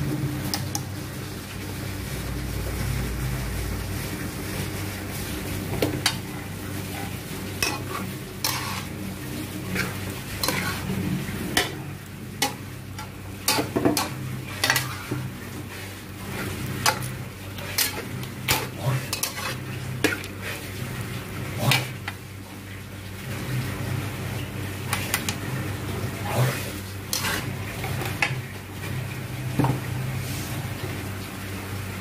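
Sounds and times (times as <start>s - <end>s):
chicken sizzling in a pot: 0.0s - 32.0s
metal spoon scraping a pot: 6.9s - 9.0s, 9.7s - 11.0s, 12.4s - 15.2s, 16.8s - 20.6s, 26.4s - 27.6s.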